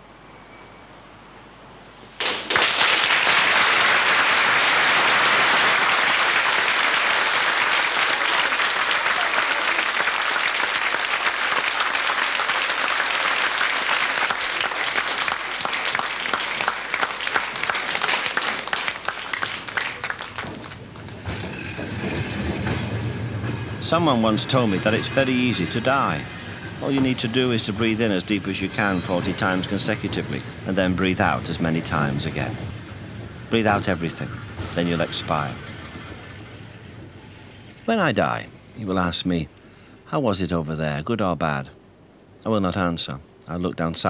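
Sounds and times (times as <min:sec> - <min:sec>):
audience applauding: 0:02.2 - 0:22.7.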